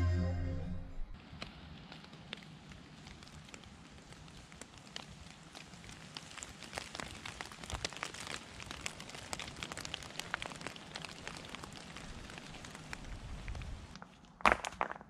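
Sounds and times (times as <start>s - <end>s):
water drops pattering on leaves: 1.2s - 14.2s.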